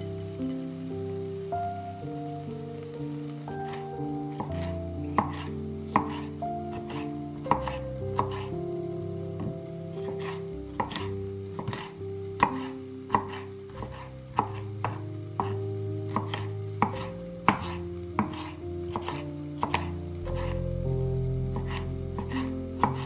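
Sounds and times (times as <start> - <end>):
soft background music: 0.0 - 23.0
knife chopping on wooden board: 3.6 - 8.5, 9.4 - 20.5, 21.6 - 23.0.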